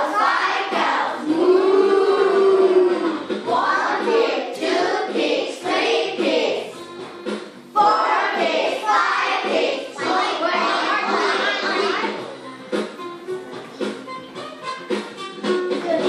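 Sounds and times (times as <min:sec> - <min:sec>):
young children singing together: 0:00.0 - 0:12.2.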